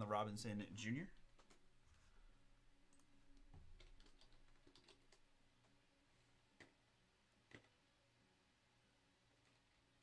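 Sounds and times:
keyboard typing: 0:01.2 - 0:01.6, 0:02.9 - 0:05.3.

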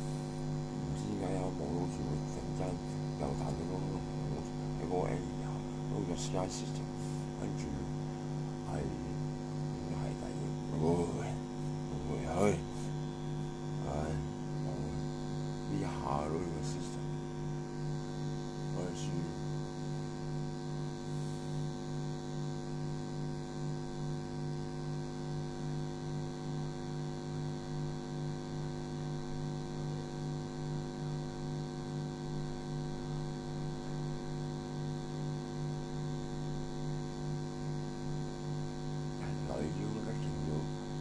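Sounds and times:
electrical mains hum: 0:00.0 - 0:41.0.

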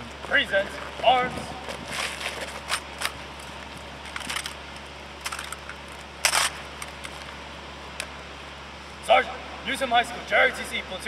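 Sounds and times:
rifles clicking and slapping: 0:04.0 - 0:07.2
rifle clatter: 0:04.1 - 0:04.6, 0:05.2 - 0:07.2.

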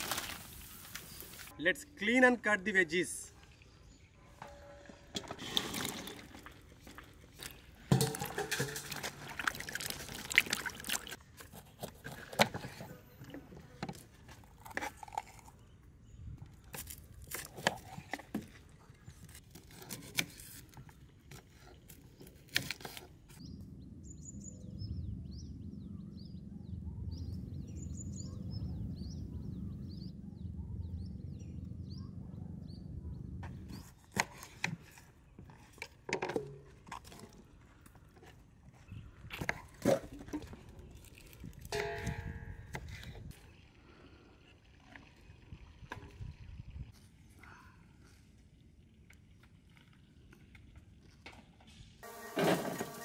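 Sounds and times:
low rumble: 0:23.4 - 0:33.4.

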